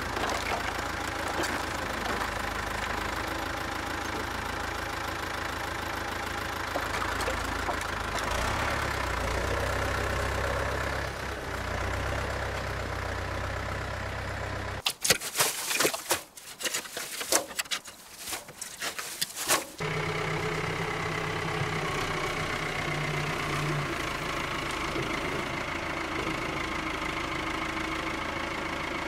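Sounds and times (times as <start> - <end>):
tractor diesel engine running: 0.0 - 14.9, 16.4 - 29.0
shovel digging into wood chips: 14.8 - 19.8.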